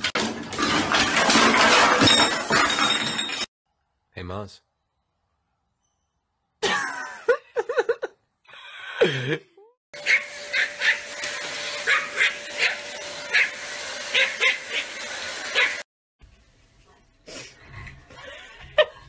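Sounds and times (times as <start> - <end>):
small dog yipping barks: 10.0 - 13.5.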